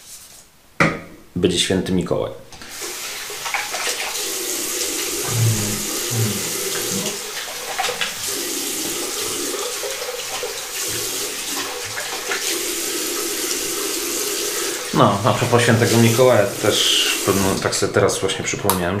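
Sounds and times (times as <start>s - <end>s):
water splashing: 2.6s - 17.9s
tap running into sink: 5.0s - 12.7s.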